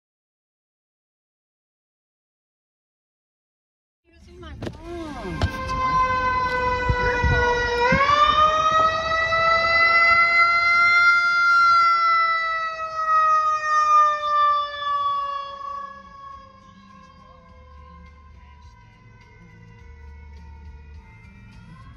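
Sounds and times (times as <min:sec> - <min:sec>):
truck engine rumbling: 0:04.1 - 0:21.9
mechanical siren wailing: 0:04.8 - 0:21.9.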